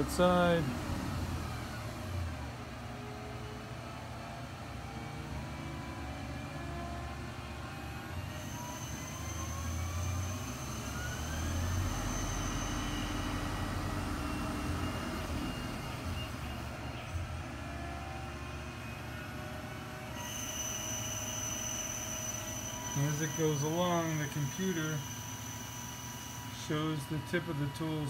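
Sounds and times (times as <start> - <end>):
rising whine: 0.0 - 28.0
lathe cutting metal: 7.7 - 17.3, 19.6 - 28.0.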